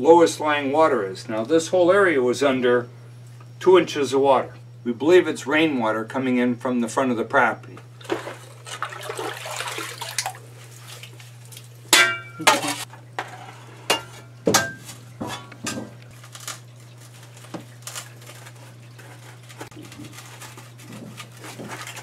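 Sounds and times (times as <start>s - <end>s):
steady low hum: 0.0s - 22.0s
water sloshing and splashing: 8.0s - 22.0s.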